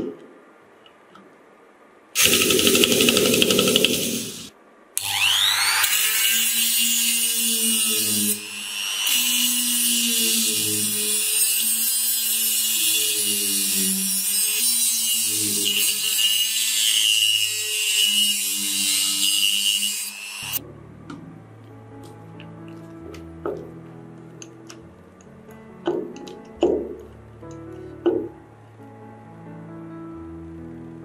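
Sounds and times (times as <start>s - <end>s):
rotary tool grinding metal: 2.2s - 20.6s.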